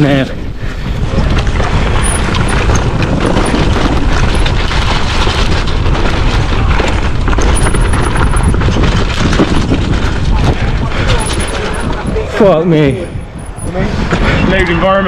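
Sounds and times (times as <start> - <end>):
wind buffeting microphone: 0.0 - 15.0
bike clattering over ground: 1.2 - 12.4.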